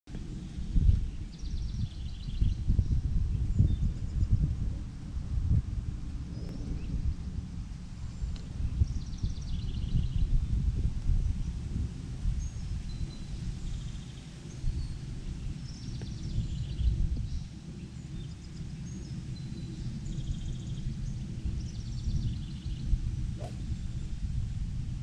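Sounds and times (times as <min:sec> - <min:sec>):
wind rumbling on microphone: 0:00.1 - 0:25.0
golf club striking ball: 0:23.4 - 0:23.8.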